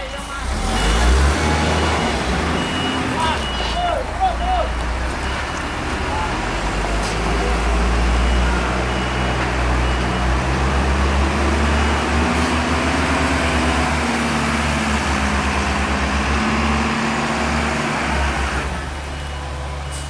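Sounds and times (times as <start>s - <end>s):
dump truck diesel engine passing: 0.2s - 20.0s.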